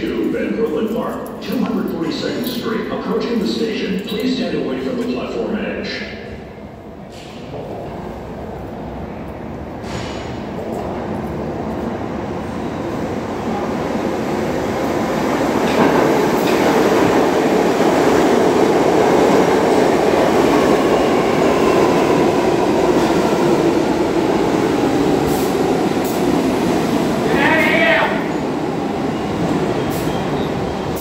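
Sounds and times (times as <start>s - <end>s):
train wheels rumbling on rails: 7.0s - 31.0s.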